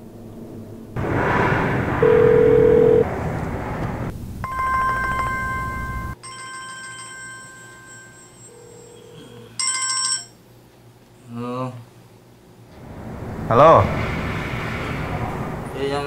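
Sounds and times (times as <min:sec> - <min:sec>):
mobile phone ringtone: 0:02.0 - 0:03.0, 0:04.5 - 0:10.4
short steady beep: 0:02.0 - 0:03.0
noisy background: 0:12.5 - 0:16.0.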